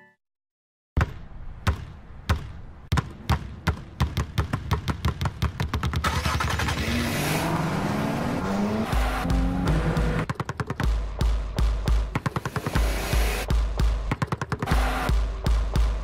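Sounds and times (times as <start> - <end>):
basketballs bouncing on asphalt: 1.0 - 6.1, 8.8 - 16.0
car engine revving: 6.1 - 10.3, 12.4 - 13.5.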